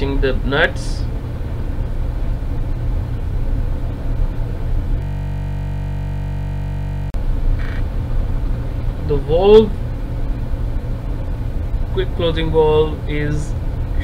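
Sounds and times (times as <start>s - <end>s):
low rumble: 0.0s - 14.0s
glitch buzz: 3.9s - 8.3s.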